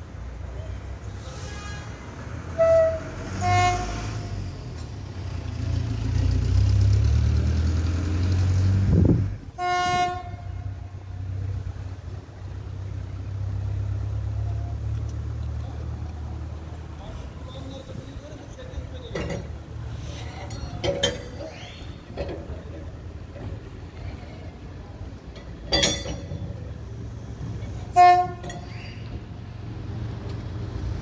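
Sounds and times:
low train rumble: 0:00.0 - 0:31.0
locomotive horn short blasts: 0:01.1 - 0:04.4, 0:09.6 - 0:10.8, 0:27.8 - 0:28.8.

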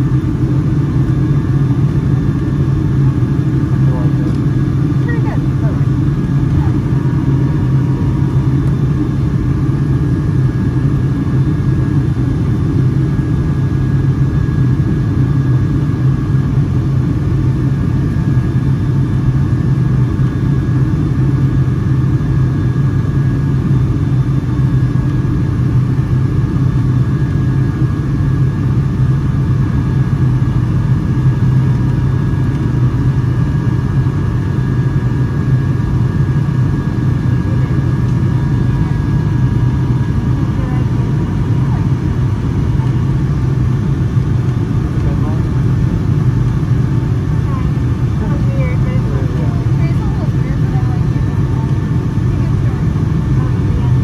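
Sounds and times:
low hum: 0:00.0 - 0:21.4
airplane cabin engine drone: 0:00.0 - 0:54.0.

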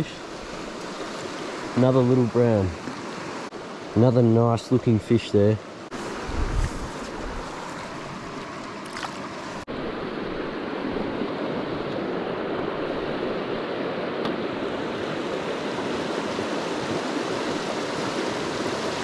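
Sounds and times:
river rushing over rocks: 0:14.5 - 0:19.0.

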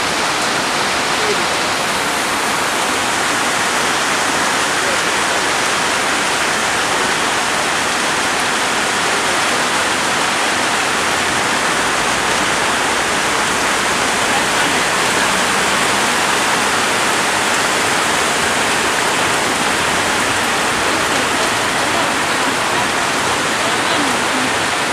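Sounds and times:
floodwater rushing: 0:00.0 - 0:24.9
heavy rain pouring: 0:00.0 - 0:24.9.

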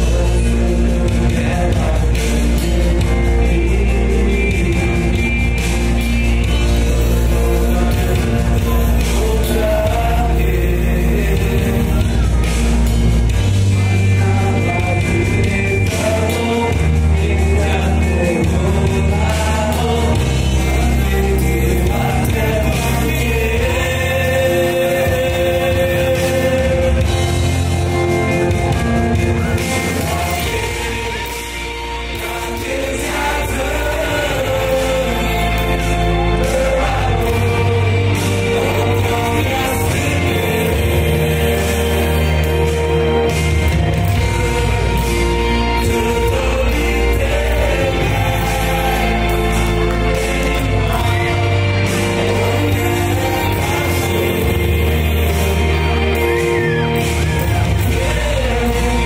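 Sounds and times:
amplified backing music: 0:00.0 - 0:59.0
man singing into a microphone: 0:00.0 - 0:59.0.

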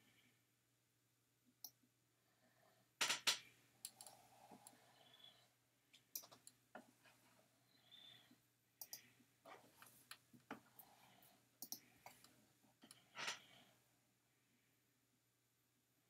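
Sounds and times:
computer mouse clicks: 0:03.8 - 0:04.8, 0:06.1 - 0:06.6, 0:08.8 - 0:09.1, 0:11.6 - 0:13.0.

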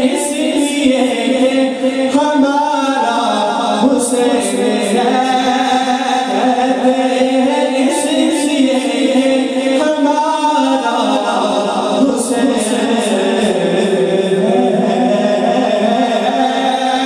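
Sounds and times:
man singing into a microphone: 0:00.0 - 0:17.0.

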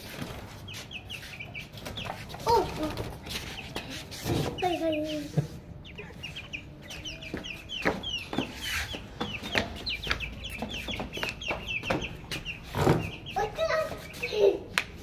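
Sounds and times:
chicks peeping: 0:00.0 - 0:15.0.

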